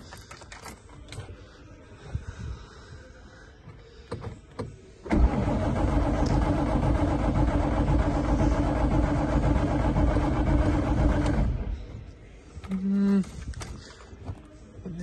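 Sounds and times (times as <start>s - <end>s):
engine cranking on starter motor: 5.0s - 11.9s.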